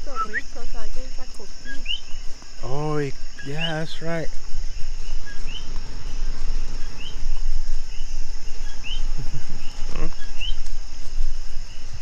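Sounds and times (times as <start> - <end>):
frogs chirping: 0.0 - 12.0
insect chorus: 0.0 - 12.0
microphone handling rumble: 4.3 - 12.0.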